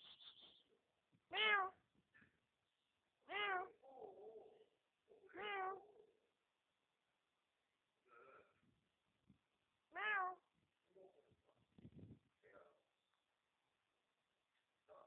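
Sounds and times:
kitten meowing: 1.3s - 1.8s, 3.3s - 3.7s, 5.4s - 5.8s, 10.0s - 10.4s.

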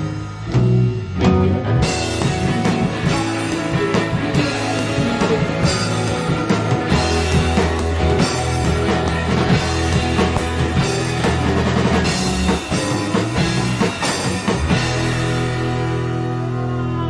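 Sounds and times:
drums hitting steadily: 0.0s - 16.7s
rock band playing: 0.0s - 17.0s.

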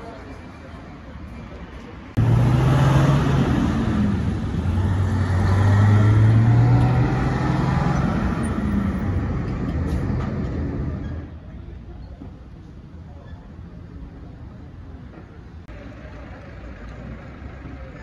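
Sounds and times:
truck engine driving past: 2.2s - 11.3s.

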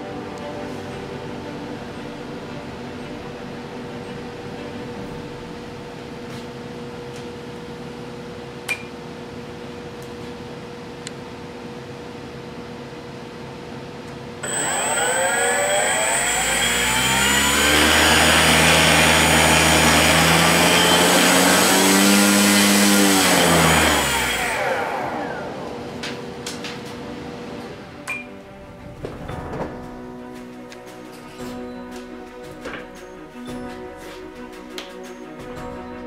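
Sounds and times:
electric motor whine: 14.4s - 28.8s.

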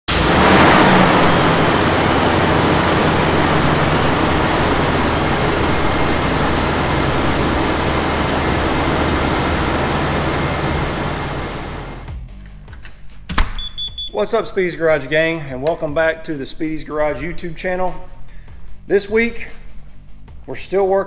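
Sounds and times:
engine idling: 0.1s - 12.2s.

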